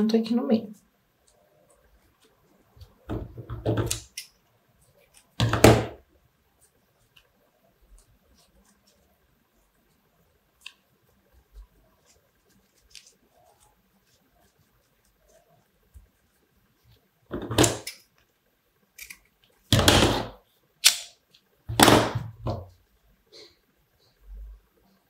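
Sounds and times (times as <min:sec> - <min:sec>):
fingers rustling ribbon: 0:06.3 - 0:17.1.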